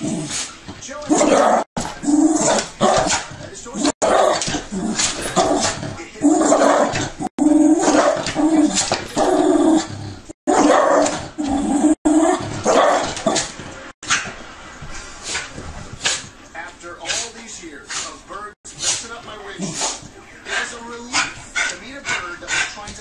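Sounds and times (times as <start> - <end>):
small dog barking and whining: 10.5 - 11.2.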